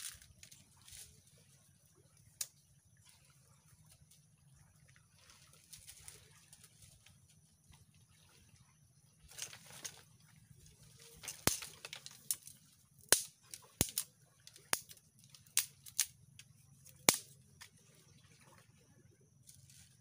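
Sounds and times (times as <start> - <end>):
sticks snapping: 11.2 - 12.5, 13.1 - 16.1, 16.9 - 17.4.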